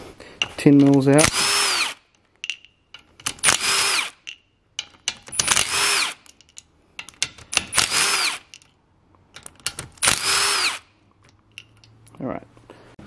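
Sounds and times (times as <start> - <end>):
cordless drill spinning bolts: 0.6 - 8.7, 9.4 - 10.9.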